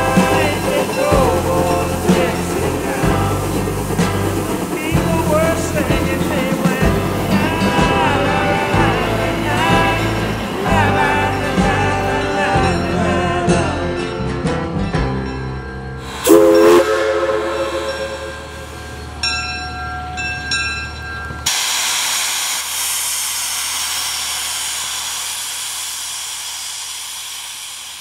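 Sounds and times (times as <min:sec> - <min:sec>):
steam locomotive whistle: 0:00.0 - 0:13.5, 0:16.0 - 0:19.4
steam hissing: 0:00.0 - 0:14.1, 0:16.0 - 0:20.5, 0:21.4 - 0:28.0.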